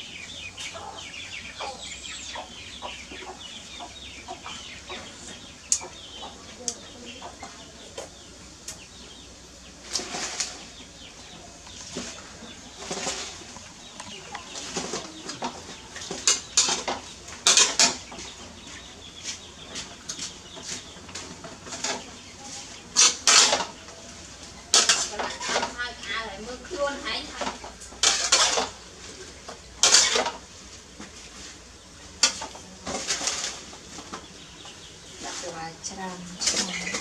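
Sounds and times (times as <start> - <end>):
metal spatula scraping a wok: 16.1 - 18.1, 23.0 - 23.8, 24.7 - 25.8, 28.0 - 28.8, 29.8 - 30.4.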